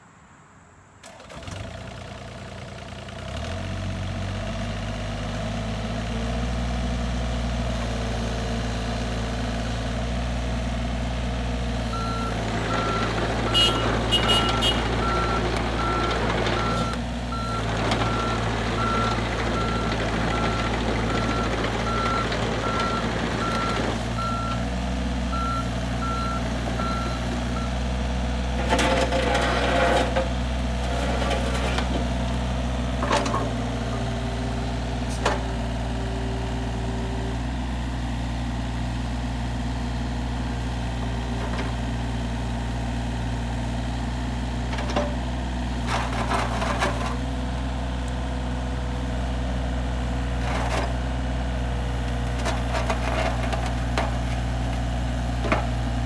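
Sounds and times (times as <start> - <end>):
diesel engine running: 1.0 - 56.0
travel alarm beeping: 12.0 - 17.6.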